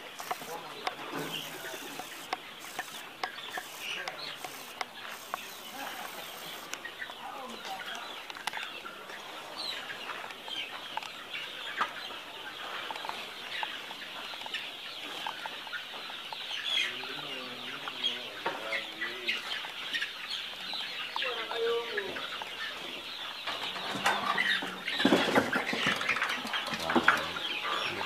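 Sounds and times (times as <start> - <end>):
chickens clucking: 0.0 - 28.0
drawn-out chicken calls: 0.0 - 28.0.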